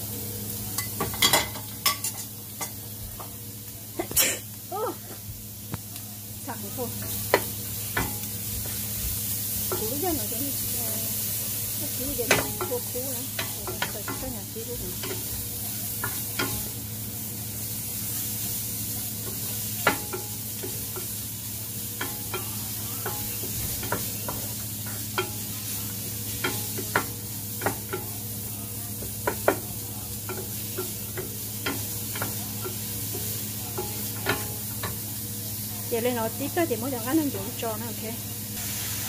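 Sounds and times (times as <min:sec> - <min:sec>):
shallots sizzling in a pan: 0:00.0 - 0:39.0.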